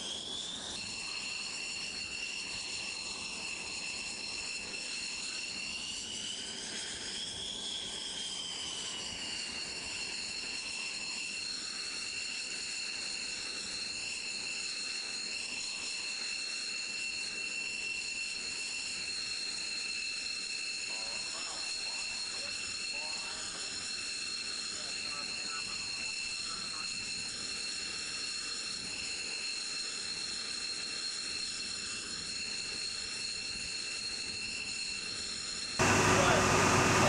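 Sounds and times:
jet engine idling whine: 0.0s - 37.0s
rushing noise: 35.8s - 37.0s.

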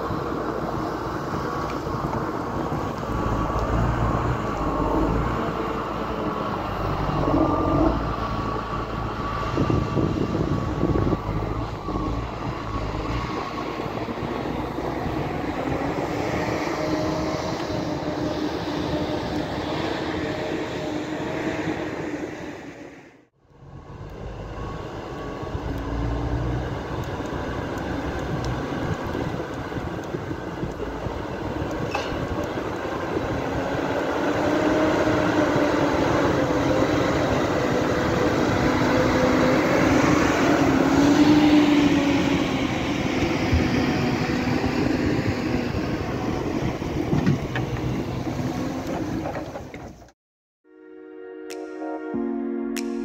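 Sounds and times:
diesel engine running: 0.0s - 22.1s, 23.4s - 50.1s
logs dragging: 1.6s - 8.6s.

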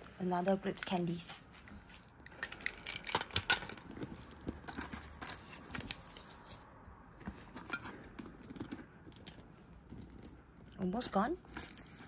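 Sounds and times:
hands rummaging in handbag: 2.4s - 12.0s.

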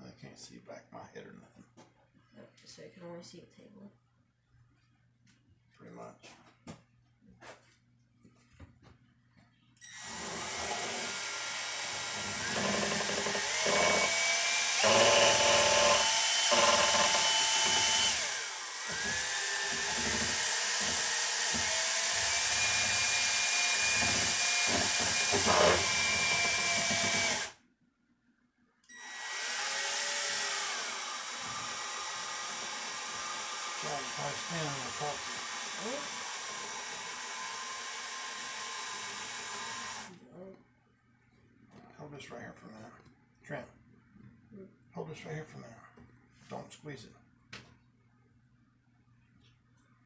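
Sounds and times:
power drill mixing resin: 9.8s - 27.6s, 28.9s - 40.2s.

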